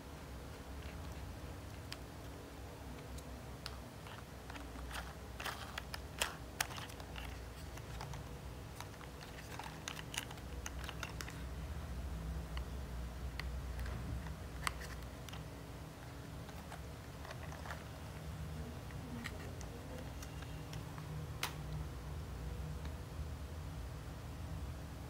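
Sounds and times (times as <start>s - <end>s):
plastic toy parts clicking: 3.6s - 11.4s.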